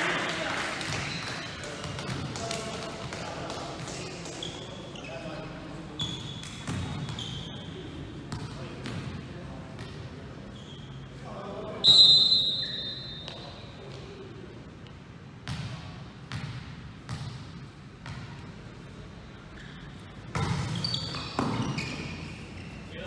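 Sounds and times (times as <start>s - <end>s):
volleyball bouncing on gym floor: 0.8s - 4.6s, 6.2s - 7.3s, 8.3s - 10.0s, 15.4s - 18.4s, 20.3s - 22.0s
referee's whistle blast: 11.8s - 13.3s.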